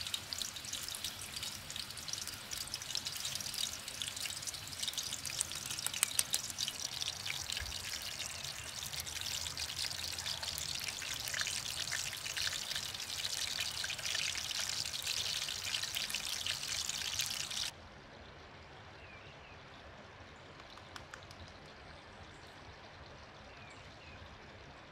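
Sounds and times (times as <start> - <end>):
meat sizzling in hot oil: 0.0 - 17.7.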